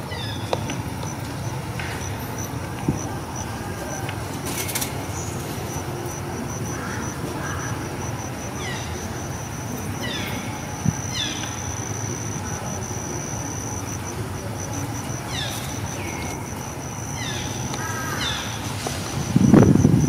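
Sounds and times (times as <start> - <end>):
high-pitched insect drone: 1.4 - 20.0
descending chirping calls: 8.1 - 13.0.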